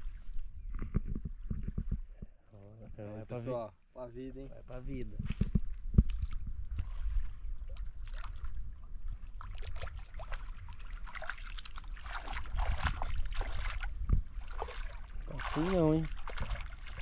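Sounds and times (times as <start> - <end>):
water splashing and trickling: 4.7 - 17.0.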